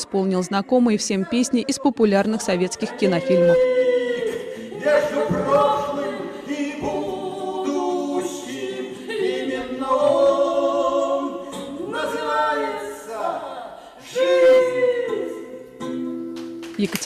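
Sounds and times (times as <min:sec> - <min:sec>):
woman singing into a microphone: 0:00.0 - 0:04.5.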